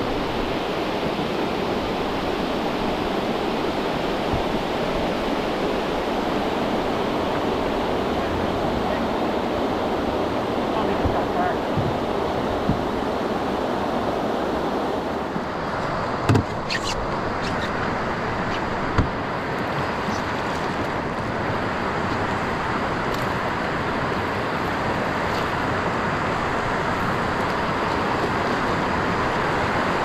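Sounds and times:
river water rushing over weir: 0:00.0 - 0:30.0.

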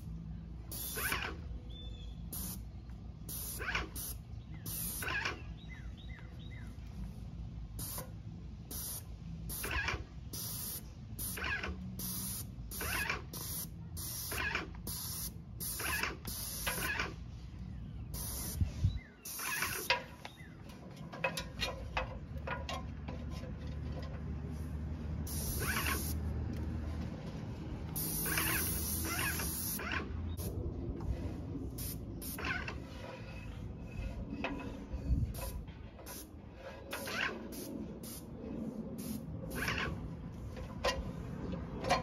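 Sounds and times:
paint sprayer hissing bursts: 0:00.7 - 0:01.4, 0:02.2 - 0:05.4, 0:07.8 - 0:17.2, 0:18.1 - 0:19.9, 0:25.2 - 0:26.3, 0:28.0 - 0:30.5, 0:31.7 - 0:32.6, 0:36.0 - 0:36.3, 0:36.9 - 0:38.3, 0:39.0 - 0:40.0.

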